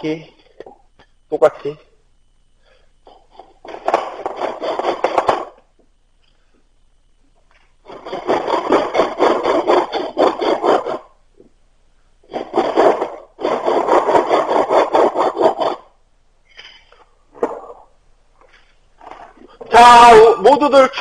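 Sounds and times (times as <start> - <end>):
hand tool rasping wood: 3.7 - 5.6, 7.9 - 11.2, 12.3 - 15.9.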